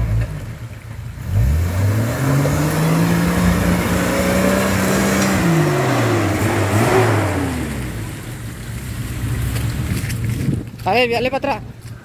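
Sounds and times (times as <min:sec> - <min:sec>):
car engine revving: 0:01.2 - 0:09.9.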